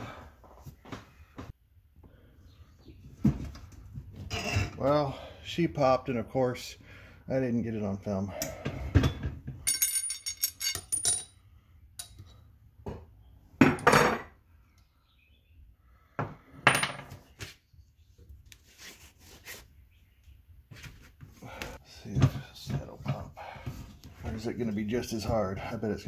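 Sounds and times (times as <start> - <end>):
metal clinks and knocks: 9.6 - 11.4.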